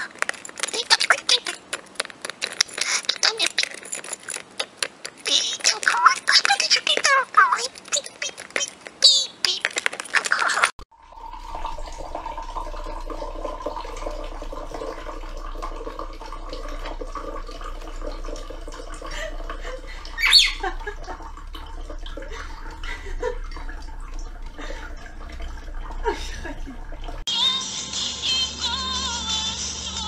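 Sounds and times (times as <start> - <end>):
water pouring into a glass: 10.9 - 27.2
parrot squawk: 20.2 - 20.7.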